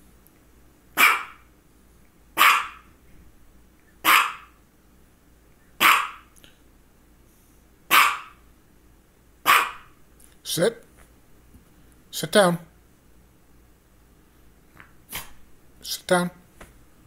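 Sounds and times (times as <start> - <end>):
small dog barking: 1.0 - 1.5, 2.4 - 2.9, 4.0 - 4.6, 5.8 - 6.3, 7.9 - 8.4, 9.4 - 10.0.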